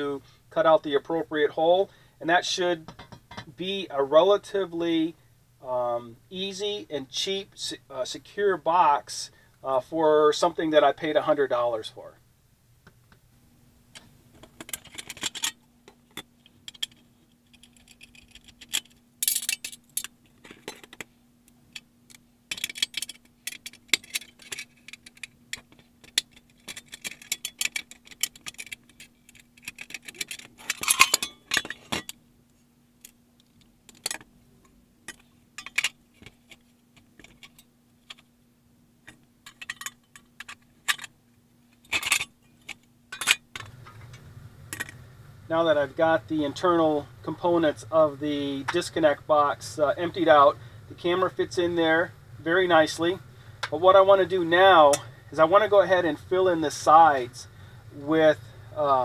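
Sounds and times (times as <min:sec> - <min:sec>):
metallic clicks and clatter: 0:14.0 - 0:21.1, 0:21.7 - 0:32.2, 0:33.0 - 0:38.3, 0:39.0 - 0:45.0.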